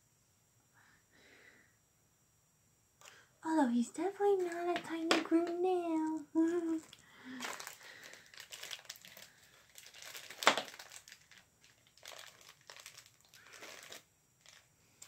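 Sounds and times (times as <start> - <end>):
plastic bag crinkling: 4.2 - 14.7.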